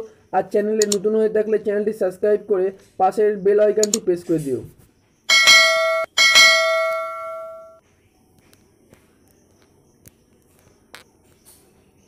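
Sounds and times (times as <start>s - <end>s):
soft clicks: 0.8s - 1.0s, 3.8s - 4.1s
notification bell chime: 5.3s - 7.8s.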